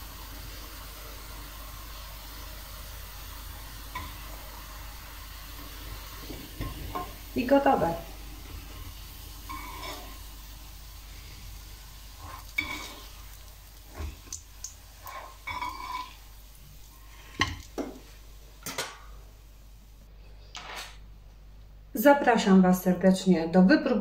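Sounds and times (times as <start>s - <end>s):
oil sizzling: 0.0s - 20.1s
metal spatula scraping a frying pan: 9.4s - 10.2s, 12.2s - 13.2s, 15.0s - 16.2s.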